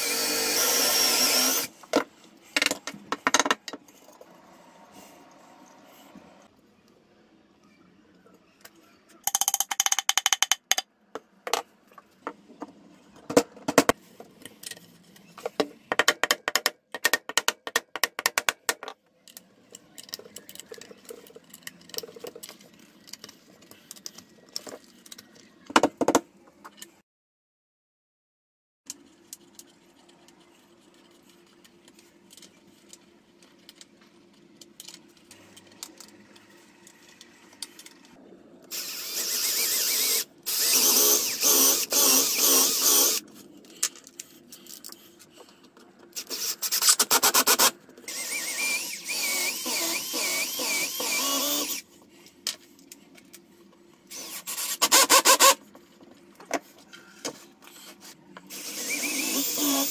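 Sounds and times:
cordless drill boring into wood: 0.0 - 1.7, 38.7 - 43.2, 46.2 - 51.8, 54.1 - 55.6, 58.5 - 59.9.

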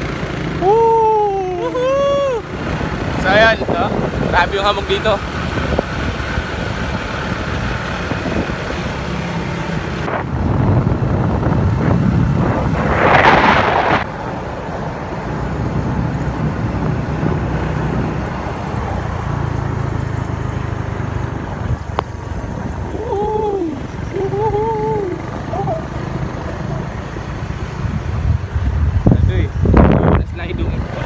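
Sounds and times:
motorcycle engine running: 0.0 - 31.0
wind buffeting microphone: 1.8 - 9.2, 9.8 - 19.7, 26.5 - 31.0.

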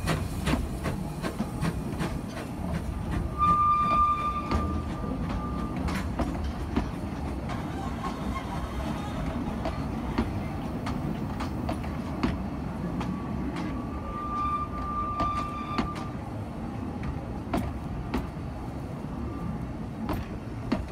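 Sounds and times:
wheels clicking over rail joints: 0.0 - 18.9
train carriages rumbling: 0.0 - 20.9.

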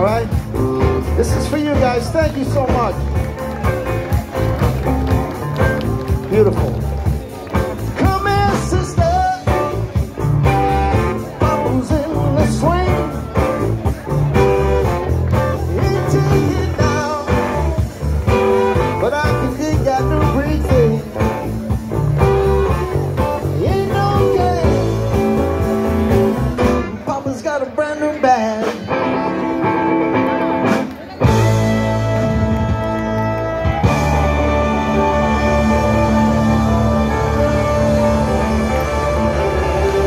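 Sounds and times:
live rock band playing: 0.0 - 40.0.

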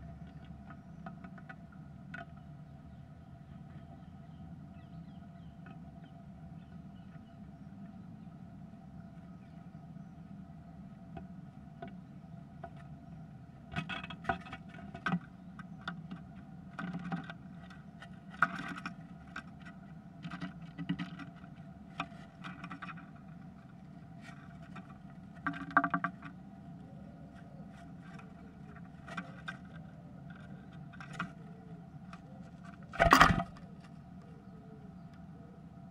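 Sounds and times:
bird claws scratching and tapping wood: 24.2 - 26.4, 27.8 - 34.0
electrical hum: 26.1 - 35.9.

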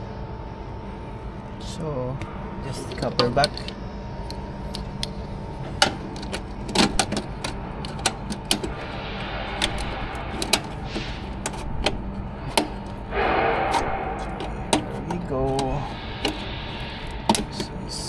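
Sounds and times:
steady low hum: 0.0 - 18.0
clicks of handling plastic terminals: 2.9 - 8.8.

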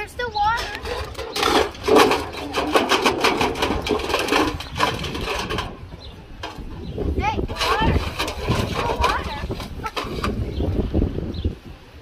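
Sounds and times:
paws knocking metal bowl: 0.8 - 6.7.

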